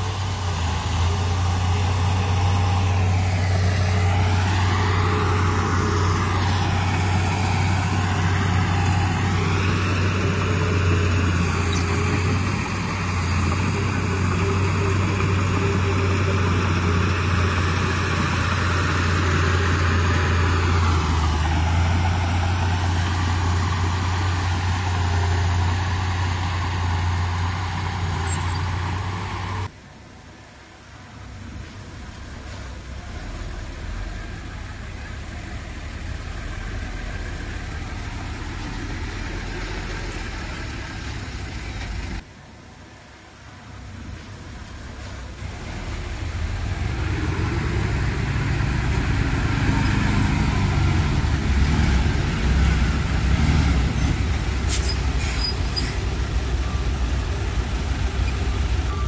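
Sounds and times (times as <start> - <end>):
bulldozer diesel engine under load: 0.0 - 59.0.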